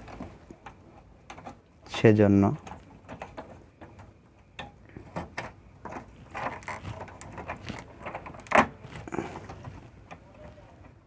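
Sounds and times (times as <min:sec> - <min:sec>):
hands handling circuit board and wires: 0:00.0 - 0:11.0.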